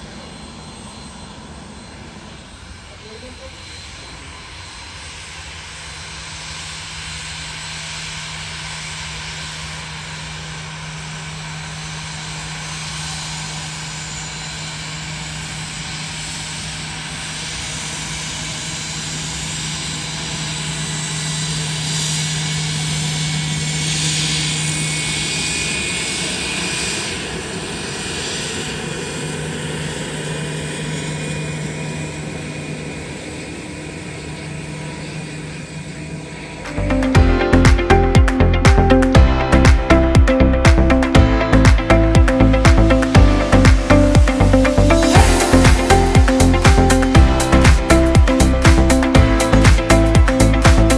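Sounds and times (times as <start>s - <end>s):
jet engine whine: 0.0s - 50.9s.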